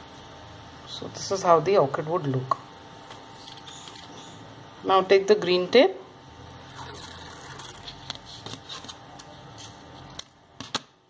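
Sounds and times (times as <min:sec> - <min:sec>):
paper tape rustling: 0:07.0 - 0:10.2.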